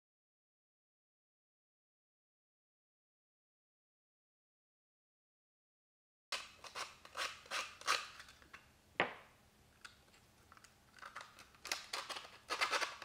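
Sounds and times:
wooden blocks clicking and scraping: 9.8 - 13.0.

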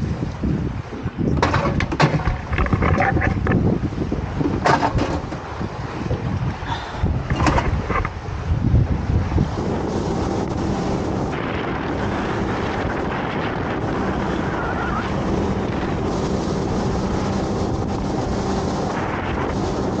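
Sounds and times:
motorboat engine hum: 0.0 - 20.0
wind buffeting microphone: 0.0 - 20.0
rush of spray from hull: 8.1 - 20.0.

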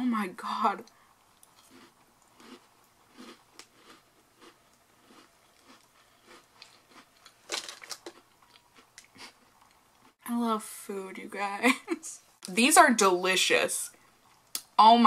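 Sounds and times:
chewing crunchy cookie: 1.3 - 10.2.

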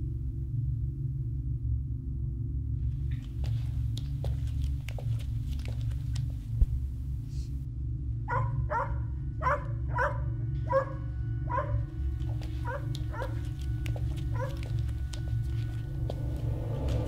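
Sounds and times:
low steady rumble: 0.0 - 17.0
dog barking: 8.3 - 11.9, 12.6 - 13.5, 14.2 - 14.8.

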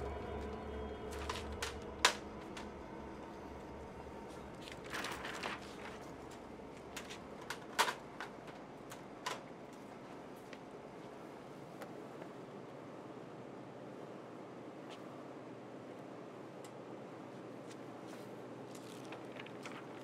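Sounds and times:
plastic sheet rustling: 4.2 - 8.6.

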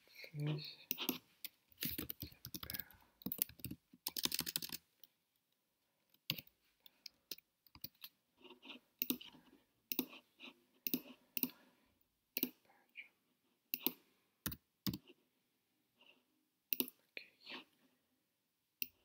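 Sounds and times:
typing on computer keyboard: 1.8 - 4.8.

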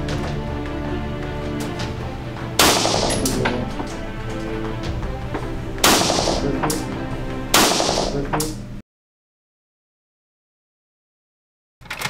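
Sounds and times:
background music: 0.0 - 8.8
pistol shots ringing: 2.6 - 3.6, 5.8 - 6.8, 7.6 - 8.2.

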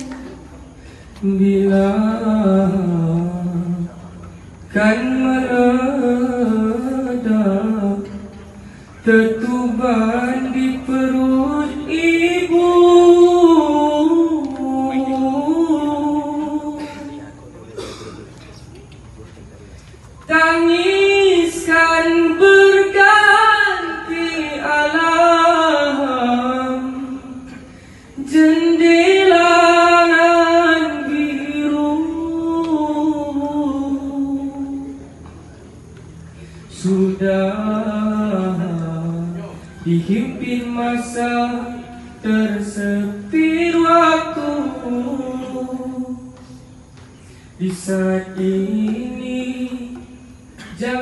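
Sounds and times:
man singing unaccompanied: 0.0 - 17.5, 20.2 - 35.3, 36.7 - 46.8, 47.6 - 51.0.

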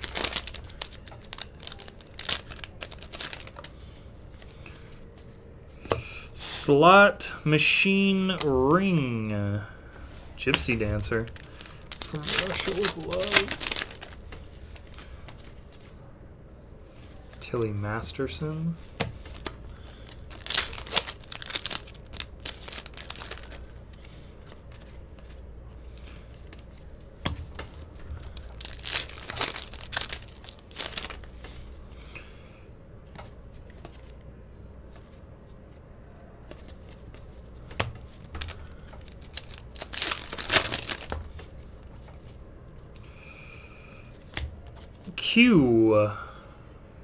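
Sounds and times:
foil wrappers tearing and crinkling: 0.0 - 4.6, 10.4 - 15.6, 18.8 - 25.4, 27.7 - 31.7, 36.5 - 42.3.

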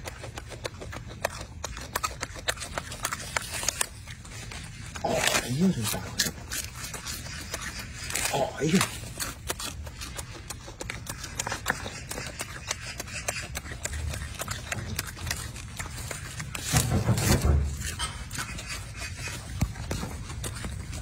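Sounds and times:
monkey chewing leaves: 0.0 - 21.0
leaves rustling: 1.2 - 21.0.

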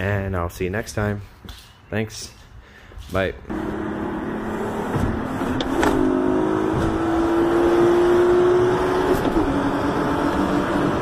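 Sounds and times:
car engine running: 3.5 - 11.0.

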